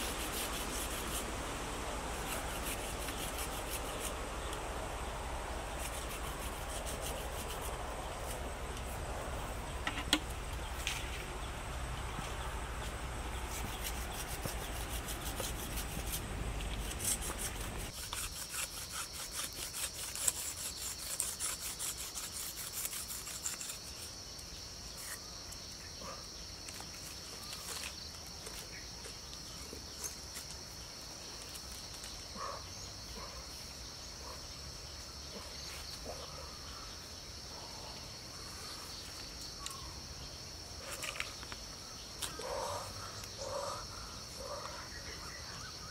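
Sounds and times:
high insect drone: 0.0 - 45.9
dry vines rustling and scraping: 5.7 - 24.1, 26.6 - 32.5.

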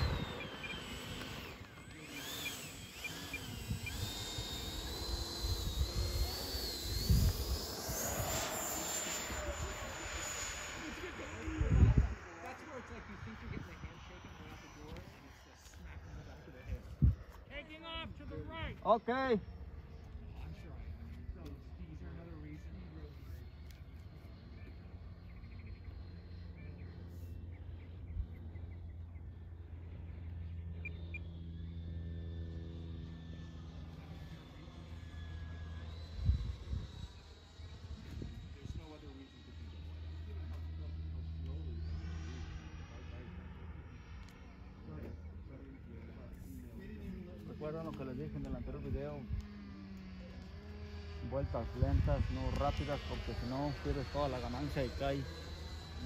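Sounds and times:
electric ducted fan whine: 0.0 - 56.0
wind rumble on microphone: 5.2 - 8.6, 11.3 - 15.0, 35.9 - 39.0
bird chirps: 24.5 - 29.4.

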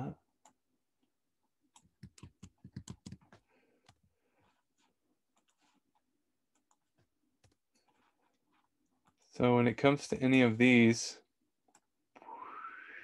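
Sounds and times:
keyboard and mouse clicks: 1.7 - 4.0.

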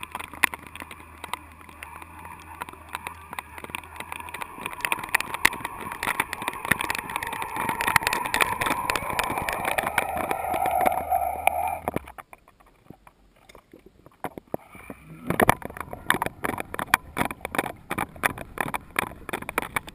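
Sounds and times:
steady whine: 0.0 - 12.2
underwater water rushing: 0.0 - 12.2
clicks and knocks: 0.0 - 19.9.

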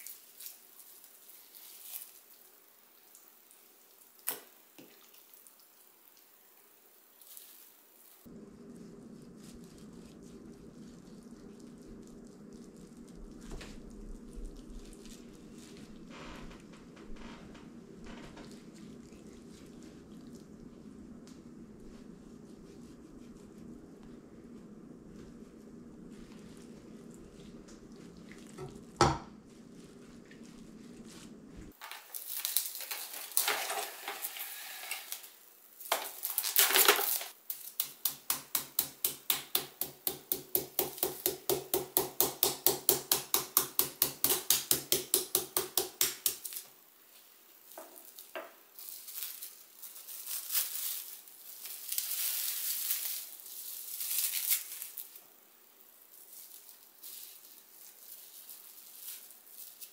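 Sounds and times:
utensils clinking in bowl: 31.8 - 35.3.

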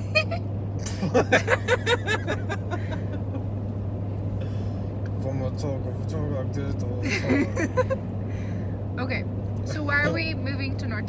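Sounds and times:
person laughing: 0.0 - 3.5, 7.0 - 8.0
car cabin road and engine drone: 0.0 - 11.0.

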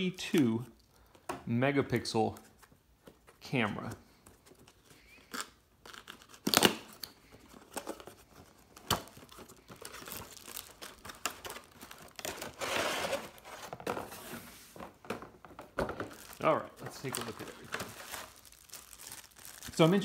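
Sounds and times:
plastic packaging crinkling: 4.6 - 14.0, 15.9 - 20.0
cardboard box tearing: 12.2 - 13.7.

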